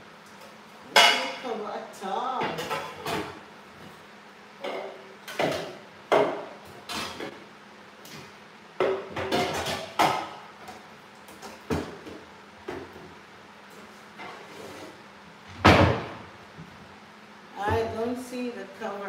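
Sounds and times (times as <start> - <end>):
dishes knocking and clinking: 4.6 - 7.4, 8.8 - 10.4.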